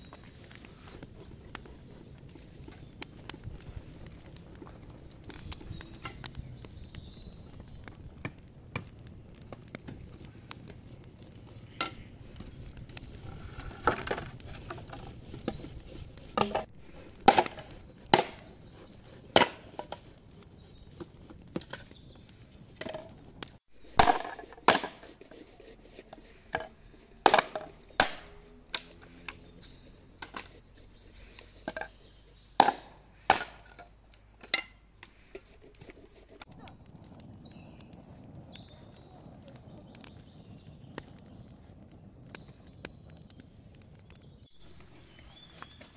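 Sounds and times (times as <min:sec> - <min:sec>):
hatchet chopping wood: 0:16.4 - 0:18.5, 0:19.3 - 0:20.0, 0:23.8 - 0:25.2, 0:27.2 - 0:29.4, 0:32.6 - 0:33.8.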